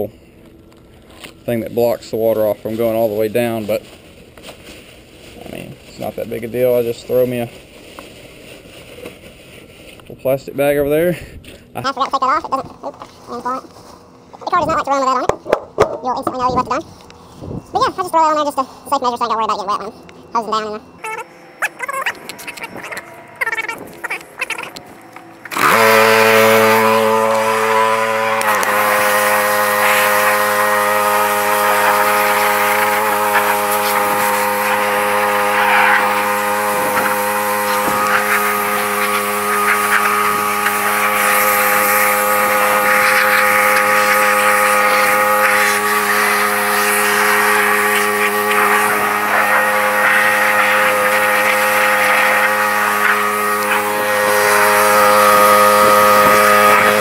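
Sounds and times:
small gasoline engine running: 22.2 - 57.0
spray jet hissing: 25.3 - 57.0.

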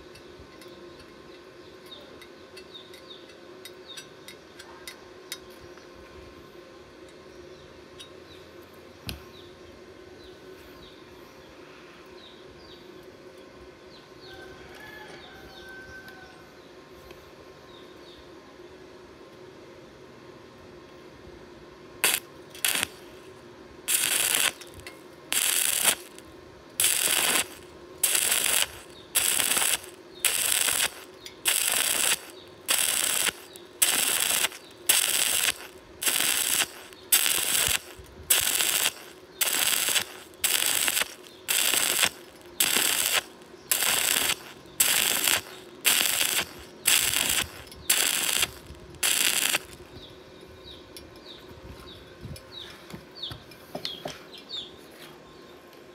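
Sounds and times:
welding arc crackling: 22.0 - 50.0.

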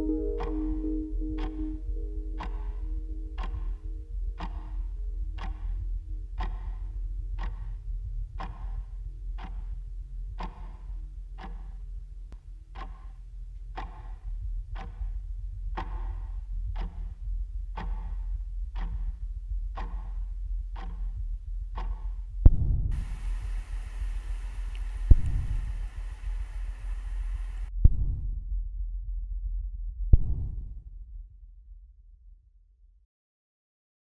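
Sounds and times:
clock ticking: 0.0 - 23.1
low rumble: 0.0 - 32.2
loud thud: 30.2 - 30.7.

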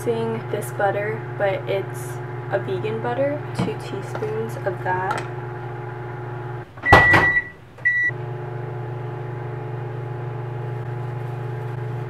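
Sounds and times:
microwave oven humming: 0.0 - 12.0
microwave clunk: 6.8 - 8.0
high beeps: 6.9 - 8.1.

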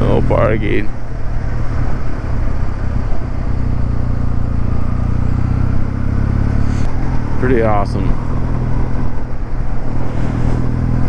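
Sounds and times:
motorcycle engine cruising: 0.0 - 11.0
wind and road noise: 0.0 - 11.0.

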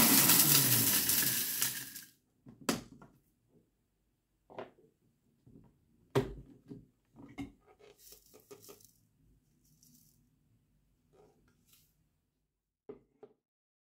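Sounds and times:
blender jar clunk: 0.0 - 2.0
plastic fragments rattling in jar: 0.0 - 2.1.

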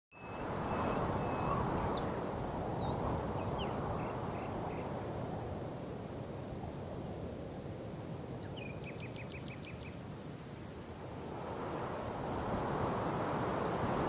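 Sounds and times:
faint bird chirps: 0.1 - 2.2, 8.0 - 10.0
steady rushing noise: 10.9 - 14.0.

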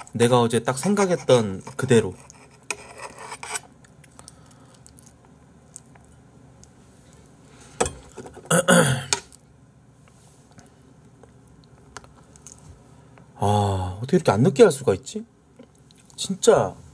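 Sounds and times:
knife and fork scraping a plate: 0.7 - 3.7.

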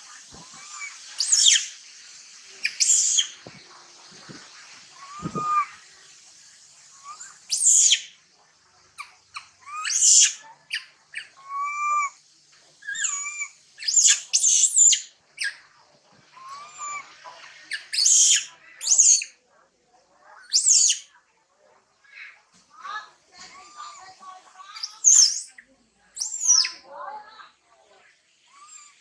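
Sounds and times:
faint high hiss: 0.0 - 19.6
animal chirps and squeals: 0.4 - 1.8, 2.6 - 3.4, 4.9 - 5.9, 7.0 - 8.1, 9.0 - 12.2, 12.8 - 15.6, 16.3 - 19.4, 20.3 - 21.1, 23.5 - 26.8, 28.4 - 29.0.

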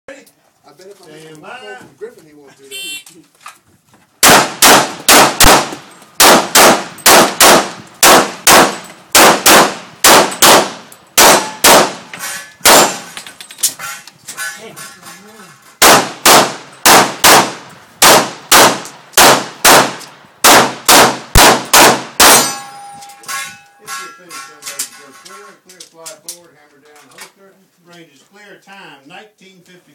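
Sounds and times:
pistol shots: 4.2 - 13.2, 15.8 - 22.7.

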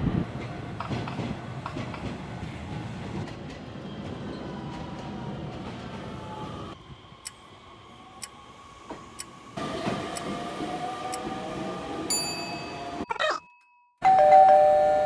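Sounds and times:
train wheel noise: 0.0 - 13.0.

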